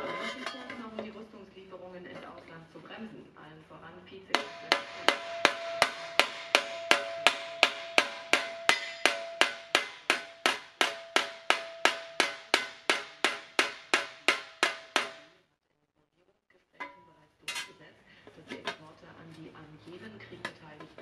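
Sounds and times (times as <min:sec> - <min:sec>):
hammer striking sheet steel: 0:04.4 - 0:15.4.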